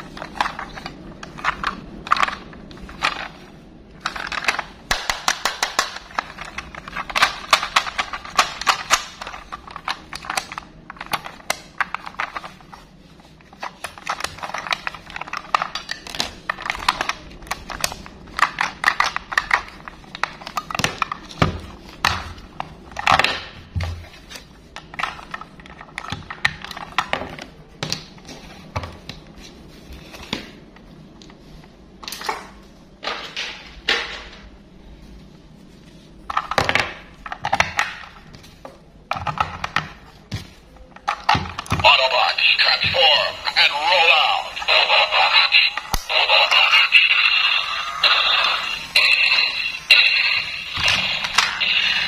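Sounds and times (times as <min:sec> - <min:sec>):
plastic toy clicking and rattling: 0:04.0 - 0:12.6.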